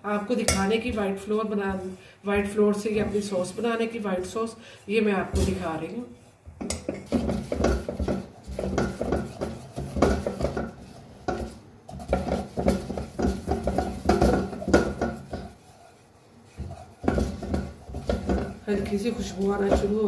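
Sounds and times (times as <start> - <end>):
spatula scraping a metal saucepan: 5.2 - 20.0.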